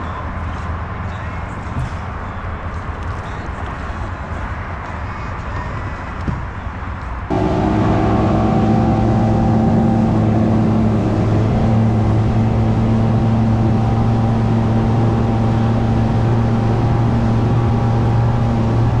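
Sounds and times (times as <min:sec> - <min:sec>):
outboard motor running: 0:07.3 - 0:19.0
rush of boat wake: 0:07.3 - 0:19.0.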